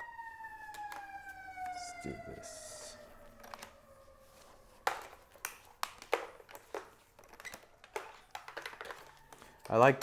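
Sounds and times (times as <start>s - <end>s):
plastic clicks and knocks: 4.8s - 9.8s.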